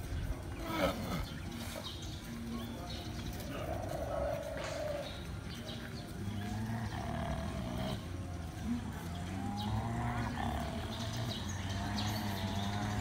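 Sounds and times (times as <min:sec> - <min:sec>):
low drawn-out animal vocalizing: 0:00.6 - 0:01.8, 0:06.0 - 0:13.0.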